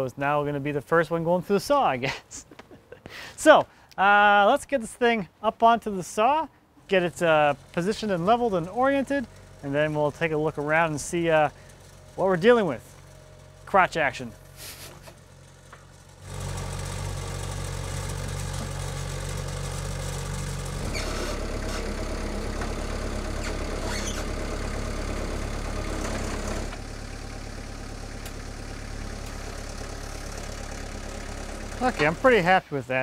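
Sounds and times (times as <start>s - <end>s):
loader engine running: 6.8s - 32.6s.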